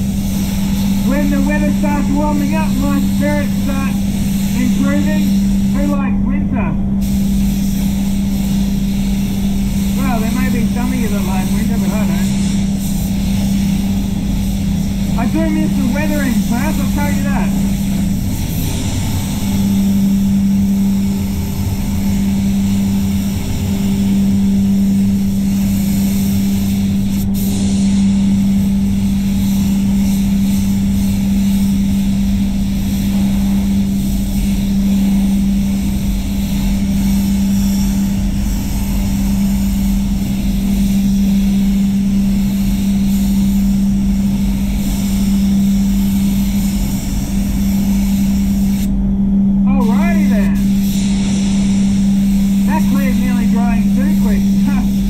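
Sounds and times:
spray gun hissing: 0.0 - 6.1, 6.9 - 48.9, 49.7 - 55.0
air system humming: 0.0 - 55.0.

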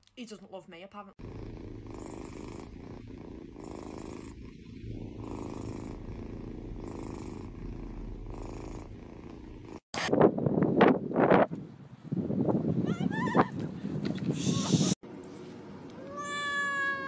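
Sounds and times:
kitten purring: 1.2 - 9.9.

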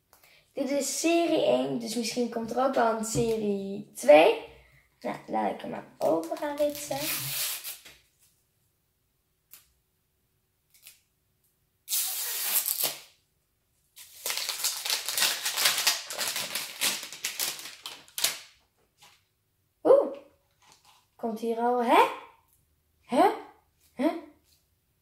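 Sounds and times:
packaging tearing: 6.3 - 7.9, 11.9 - 13.1, 14.0 - 18.5.

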